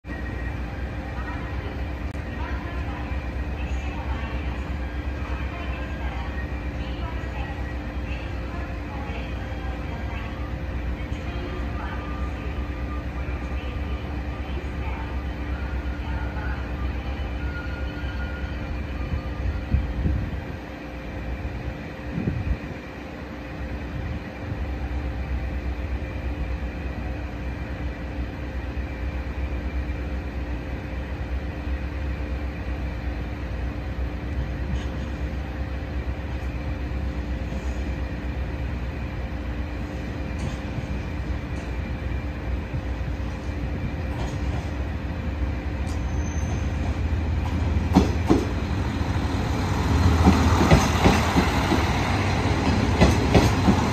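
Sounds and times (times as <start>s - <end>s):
diesel train hum: 0.0s - 53.9s.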